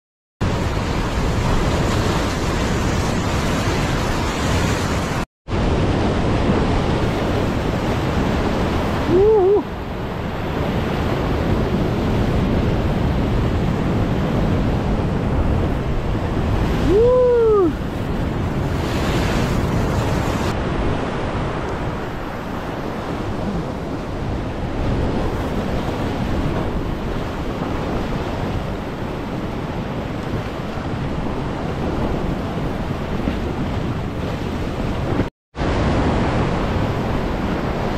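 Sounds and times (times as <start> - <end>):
surf breaking over rocks: 0.4 - 9.7
wind buffeting microphone: 0.4 - 37.9.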